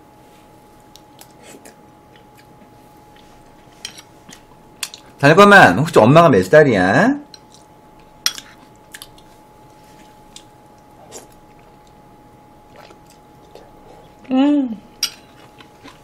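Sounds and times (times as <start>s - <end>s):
faint steady hum: 0.0s - 16.0s
mouth sounds while chewing: 12.7s - 14.3s
person humming: 13.6s - 14.8s.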